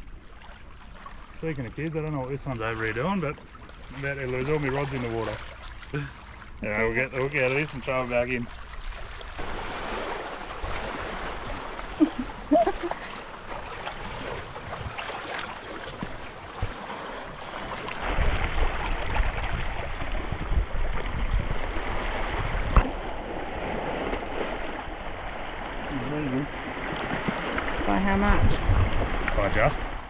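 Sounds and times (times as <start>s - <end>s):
small waves lapping on rocks: 0.0s - 29.9s
wind rumbling on microphone: 8.7s - 30.0s.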